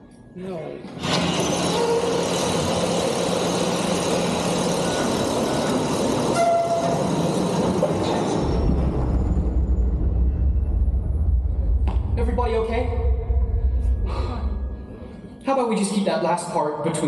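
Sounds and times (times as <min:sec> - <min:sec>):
conveyor and crusher machinery din: 0:00.9 - 0:11.7
deep rumble: 0:07.6 - 0:15.4.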